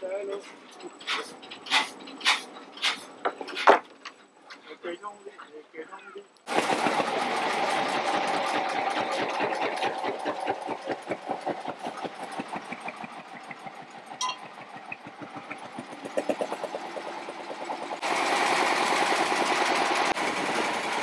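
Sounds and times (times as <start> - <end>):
boat engine knocking: 8.0 - 20.2.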